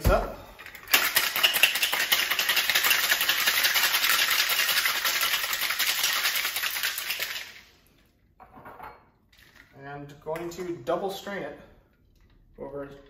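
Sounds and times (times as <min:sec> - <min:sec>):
ice rattling in cocktail shaker: 0:00.6 - 0:07.8, 0:09.3 - 0:09.8.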